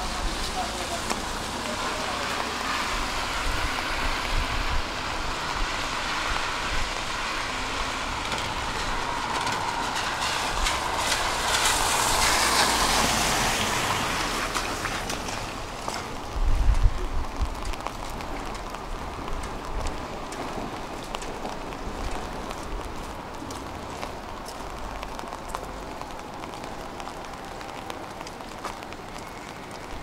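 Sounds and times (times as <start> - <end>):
traffic hiss on wet street: 0.0 - 30.0
vehicle passing: 0.5 - 16.0.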